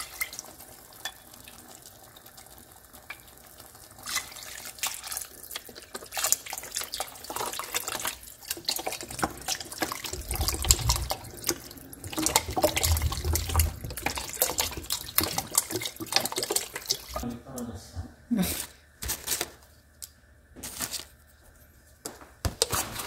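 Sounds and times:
liquid pouring and splashing into pot: 0:00.0 - 0:17.2
dull low bumps: 0:10.1 - 0:11.6.

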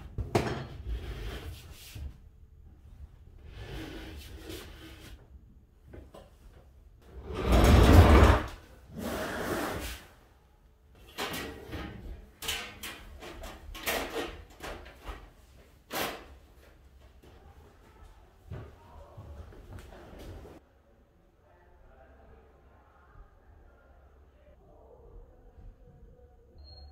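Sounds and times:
chairs knocking and clattering: 0:00.1 - 0:00.8, 0:07.2 - 0:08.6
furniture scraping: 0:00.3 - 0:02.2, 0:03.4 - 0:05.2, 0:07.1 - 0:10.1.

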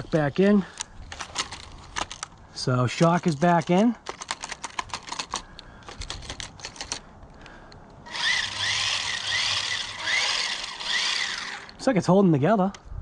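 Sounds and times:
toy truck motor whine: 0:08.1 - 0:11.8.

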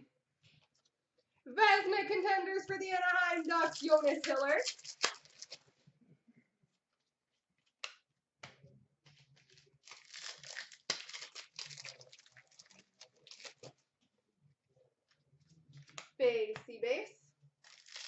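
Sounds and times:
wrapper being torn and crinkled: 0:02.9 - 0:05.6, 0:09.5 - 0:13.7, 0:17.6 - 0:18.0.

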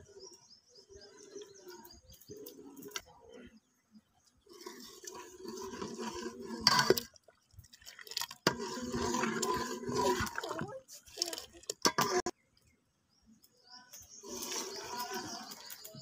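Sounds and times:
liquid sloshing in a pot: 0:04.4 - 0:12.3.

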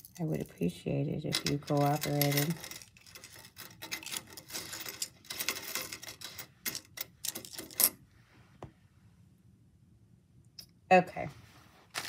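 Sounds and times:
metal necklace clinking: 0:01.2 - 0:08.0.

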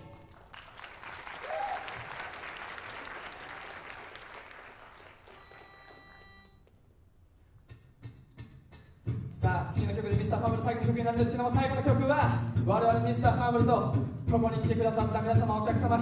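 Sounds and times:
audience applauding: 0:00.0 - 0:06.2.

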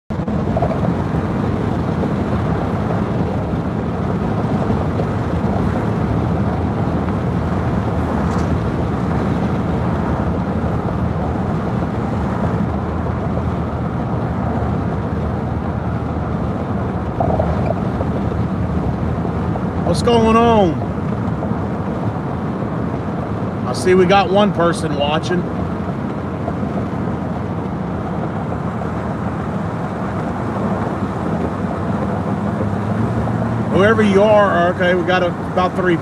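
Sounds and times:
road and engine noise in cabin: 0:00.1 - 0:36.0.

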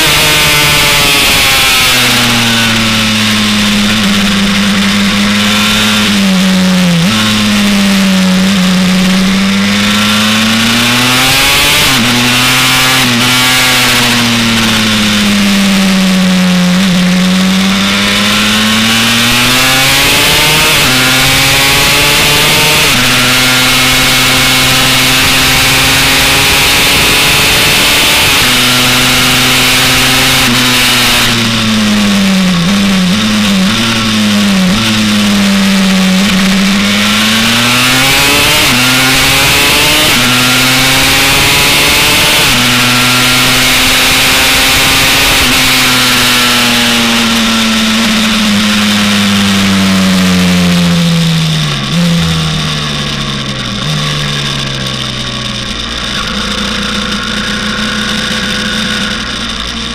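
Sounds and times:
two-stroke motorcycle engine revving: 0:00.0 - 0:59.9.

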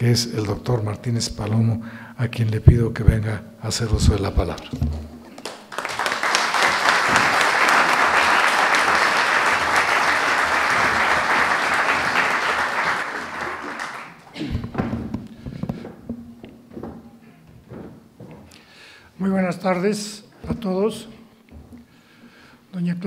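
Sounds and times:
audience applauding: 0:05.4 - 0:14.5
knocks: 0:14.4 - 0:18.5.

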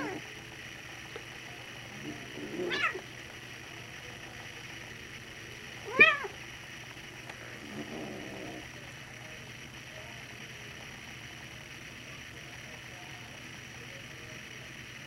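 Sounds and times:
cat meowing: 0:02.5 - 0:03.0, 0:05.9 - 0:06.3.

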